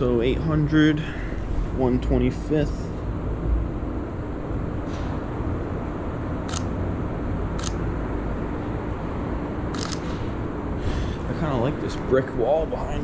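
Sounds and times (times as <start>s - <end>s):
steady machine hum: 0.0s - 13.0s
camera shutter clicks: 6.4s - 6.7s, 7.6s - 7.8s, 9.7s - 10.2s.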